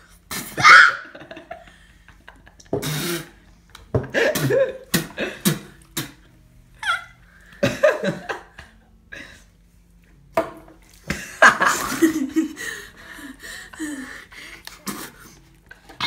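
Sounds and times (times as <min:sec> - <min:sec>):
person laughing: 0:00.6 - 0:02.9, 0:11.1 - 0:15.2
person gasping: 0:12.6 - 0:15.4.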